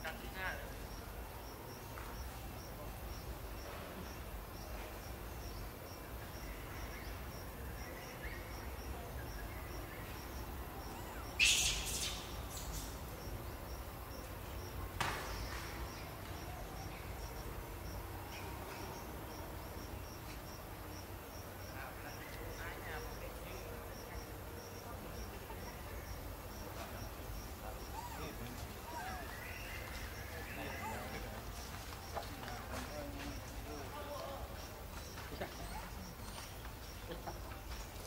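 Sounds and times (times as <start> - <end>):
insect chirping rhythmically: 0.1 - 14.9, 15.6 - 28.0.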